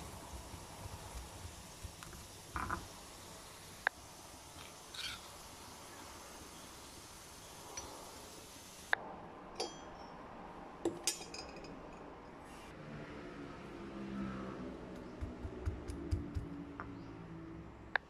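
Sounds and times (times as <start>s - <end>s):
metal spoon scraping stone mortar: 4.9s - 5.3s.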